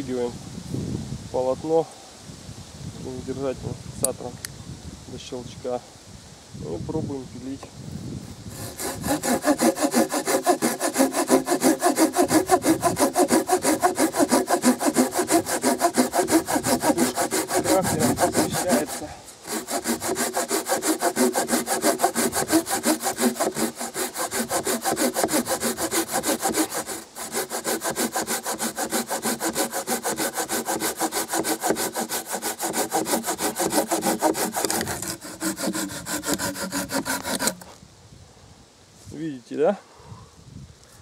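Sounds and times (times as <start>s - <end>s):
hand saw cutting log: 8.5s - 37.7s.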